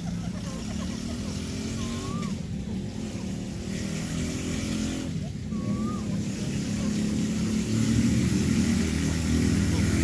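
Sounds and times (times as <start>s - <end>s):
low engine-like drone: 0.0s - 10.0s
faint short whistle: 5.5s - 6.2s.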